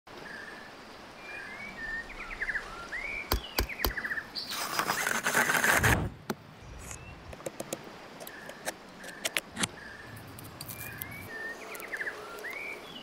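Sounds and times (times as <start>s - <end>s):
small birds chirping: 1.3s - 5.1s, 6.6s - 13.0s
blade rasping through plastic bottle: 4.6s - 6.0s.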